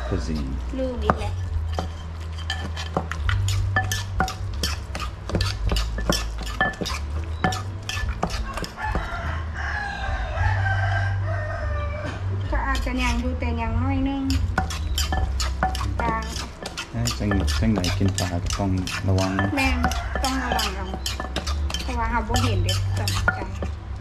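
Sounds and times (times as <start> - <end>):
pestle pounding in clay mortar: 0.0 - 9.2, 14.3 - 23.8
rooster crowing: 8.4 - 12.3, 19.2 - 21.0.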